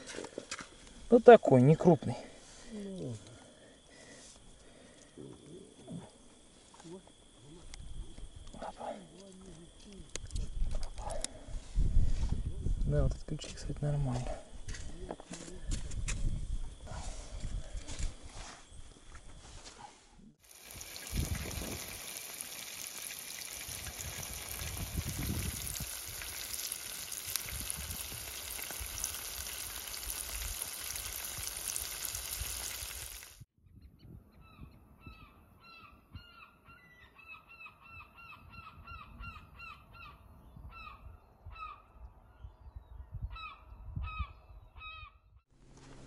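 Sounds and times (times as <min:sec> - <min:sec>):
fish sizzling in oil: 0:20.4 - 0:33.5.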